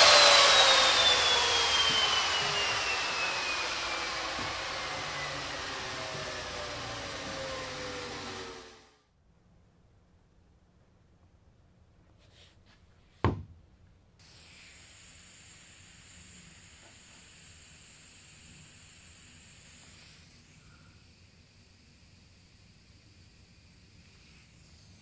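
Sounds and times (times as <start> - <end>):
compressed air hiss: 14.2 - 25.0.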